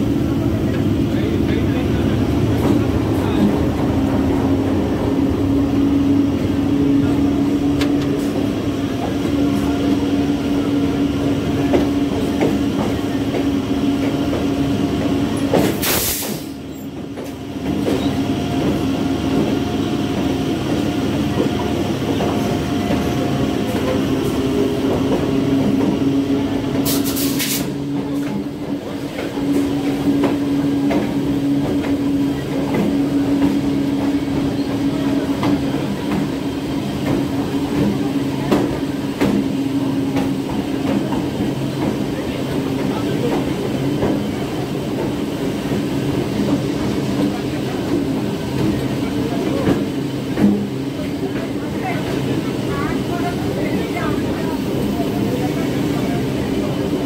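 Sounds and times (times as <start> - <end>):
train passing: 0.0 - 57.0
brief hisses: 15.8 - 16.6.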